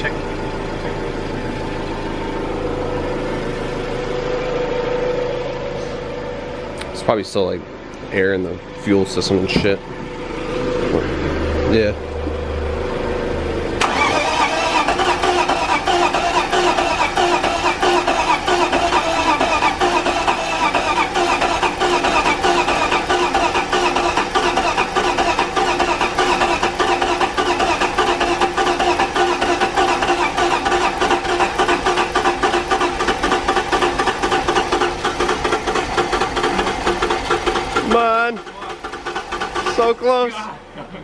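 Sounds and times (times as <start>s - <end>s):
engine cranking on starter: 13.7s - 40.3s.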